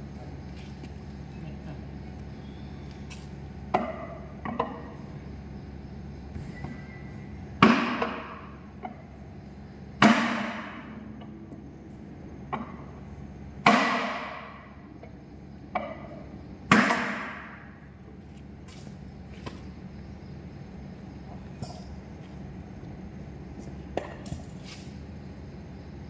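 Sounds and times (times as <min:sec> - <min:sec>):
sledgehammer striking metal: 0:16.7 - 0:17.6.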